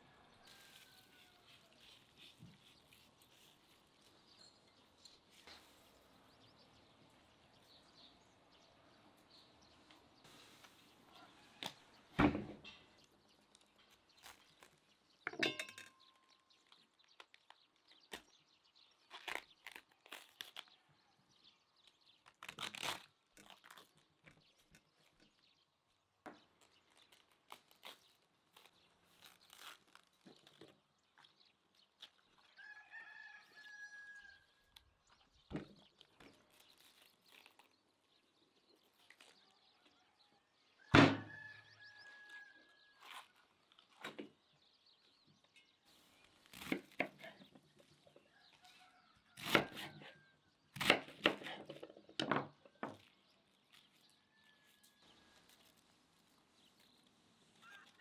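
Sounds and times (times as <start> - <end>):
rooster crowing: 0.0 - 1.8, 32.6 - 34.5
cabbage leaves tearing: 0.4 - 4.3, 13.4 - 15.1, 16.6 - 21.0, 21.8 - 25.2, 26.5 - 32.5, 35.9 - 40.0, 42.9 - 44.2, 45.9 - 48.0, 53.0 - 58.0.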